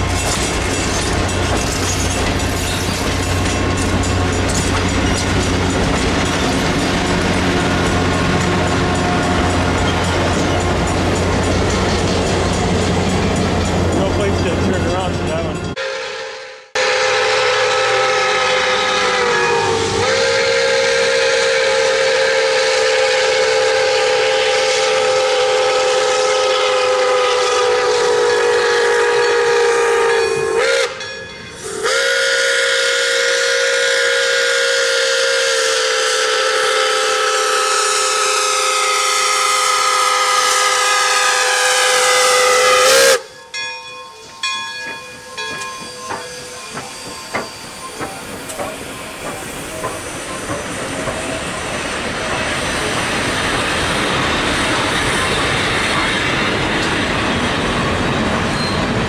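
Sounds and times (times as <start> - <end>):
train wheels clanking: 0.0 - 15.8, 42.9 - 59.0
steam whistle blasts: 15.8 - 31.0, 31.6 - 43.4.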